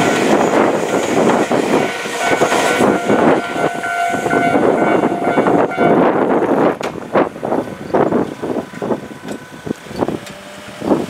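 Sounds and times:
train wheels clacking: 0:00.0 - 0:07.0
steady high tone: 0:00.0 - 0:09.6
train rumbling past: 0:00.0 - 0:10.8.

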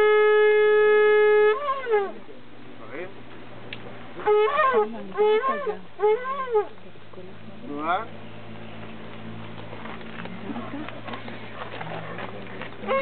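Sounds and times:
shofar blast: 0:00.0 - 0:02.2, 0:04.2 - 0:06.7
shofar short calls: 0:00.0 - 0:02.2, 0:04.2 - 0:06.8.

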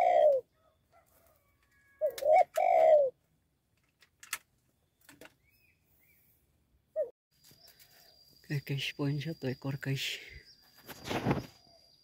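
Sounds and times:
dove cooing: 0:00.0 - 0:03.2.

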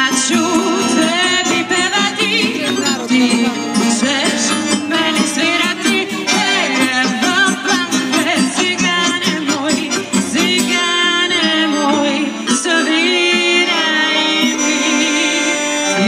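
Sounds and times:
hand drum: 0:00.0 - 0:11.5
accordion: 0:00.0 - 0:16.0
acoustic guitar: 0:00.0 - 0:16.0
keyboard: 0:00.0 - 0:16.0
woman singing: 0:00.0 - 0:16.0.

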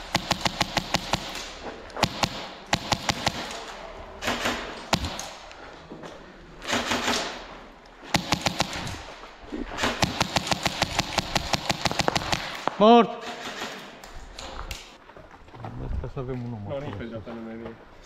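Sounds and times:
airsoft guns firing: 0:00.0 - 0:05.4, 0:06.6 - 0:09.1, 0:09.7 - 0:14.0.

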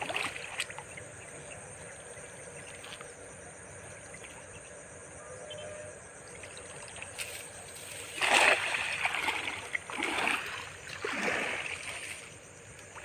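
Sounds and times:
net splashing into water: 0:00.0 - 0:00.9, 0:08.0 - 0:12.3.

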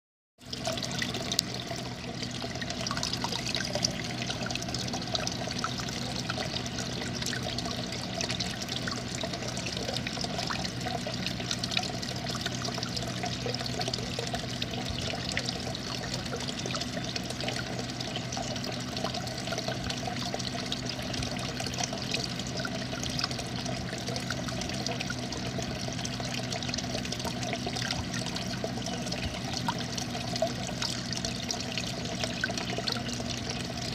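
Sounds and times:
low hum: 0:00.4 - 0:33.9.

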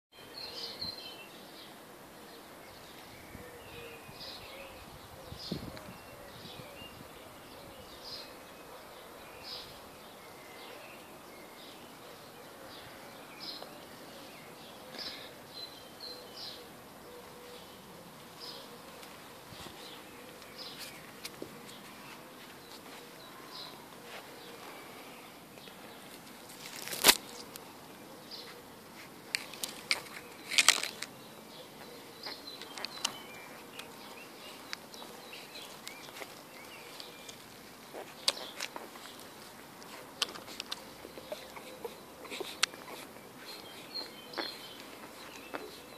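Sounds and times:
branches rustling and snapping: 0:25.6 - 0:27.7, 0:29.3 - 0:31.2.

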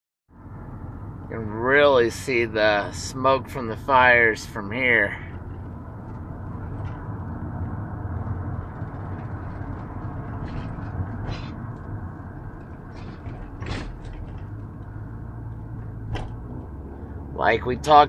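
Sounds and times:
engine and tyre rumble: 0:00.3 - 0:18.0
short rattles and creaks: 0:05.2 - 0:17.0.

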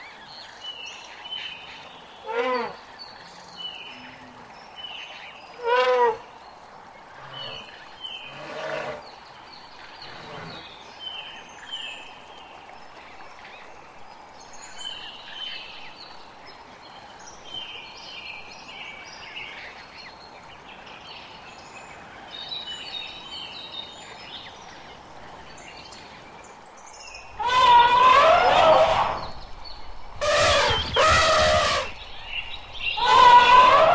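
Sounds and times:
steady background hiss: 0:00.0 - 0:33.9
birds chirping: 0:17.2 - 0:33.9.

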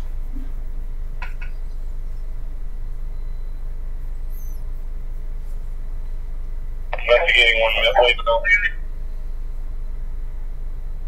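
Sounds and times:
radio scanner hum and static: 0:05.1 - 0:09.8.

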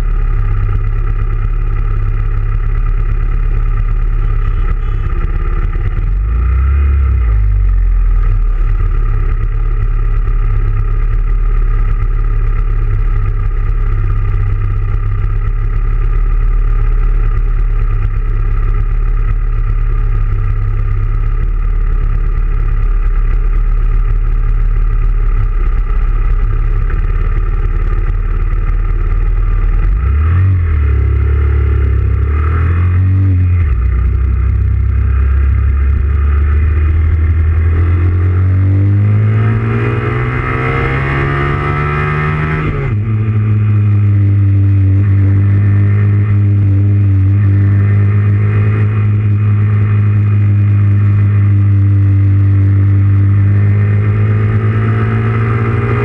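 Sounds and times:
motorcycle engines idling: 0:00.0 - 0:06.5, 0:07.4 - 0:30.0, 0:32.9 - 0:38.2
motorcycle engines revving: 0:00.0 - 0:56.0.

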